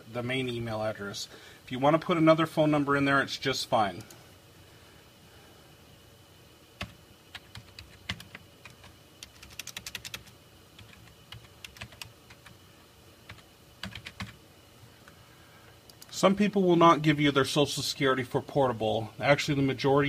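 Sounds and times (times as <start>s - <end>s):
computer keyboard typing: 6.8s - 12.6s, 13.3s - 14.4s.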